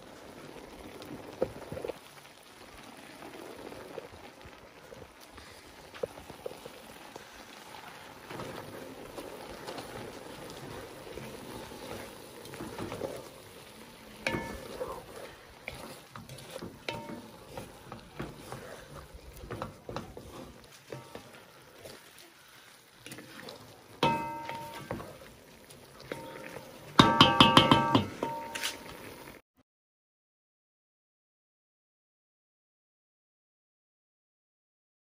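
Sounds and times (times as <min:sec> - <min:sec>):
pot simmering: 0:00.0 - 0:29.4
wooden spoon scraping metal pot: 0:08.2 - 0:29.2.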